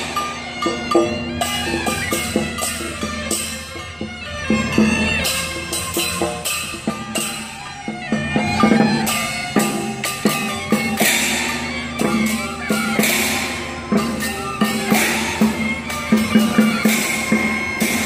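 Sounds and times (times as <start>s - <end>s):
cymbal crashes: 0.0s - 3.8s
drum beats: 0.0s - 18.0s
reedy flute melody: 0.0s - 18.0s.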